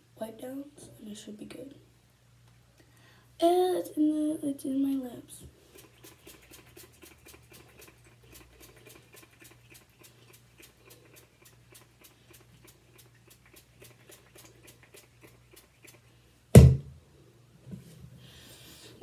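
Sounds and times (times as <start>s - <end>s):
loud thump: 16.6s - 16.9s.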